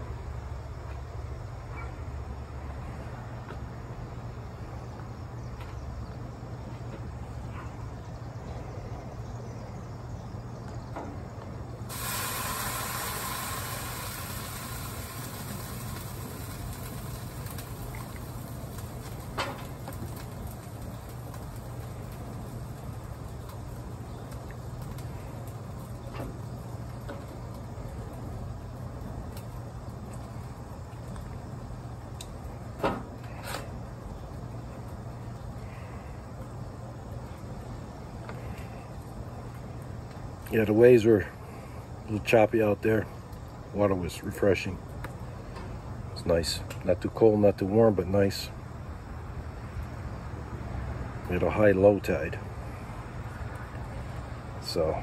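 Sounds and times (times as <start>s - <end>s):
low steady hum: 0.0s - 55.0s
shellfish sizzling on a grill: 11.6s - 54.9s.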